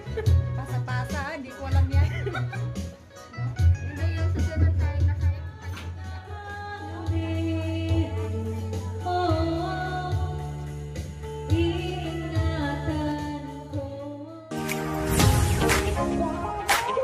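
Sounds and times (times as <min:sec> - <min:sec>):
woman singing karaoke: 0:00.0 - 0:02.6, 0:03.7 - 0:14.6
backing track with bass: 0:00.0 - 0:17.0.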